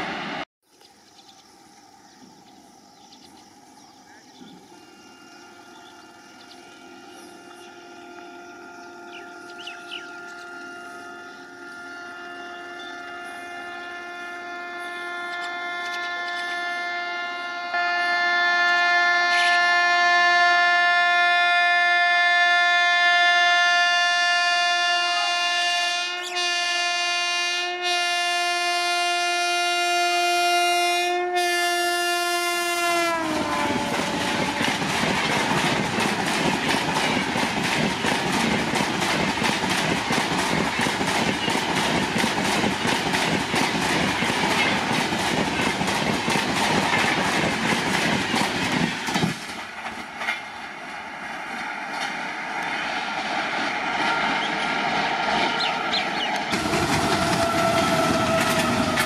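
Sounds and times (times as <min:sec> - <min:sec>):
locomotive horn blast: 0:04.4 - 0:35.6, 0:55.3 - 0:59.0
train wheel clatter: 0:33.4 - 0:50.7, 0:51.5 - 0:59.0.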